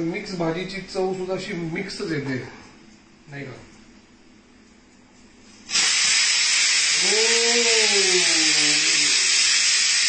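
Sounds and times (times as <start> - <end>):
pressure cooker steam hiss: 5.5 - 10.0.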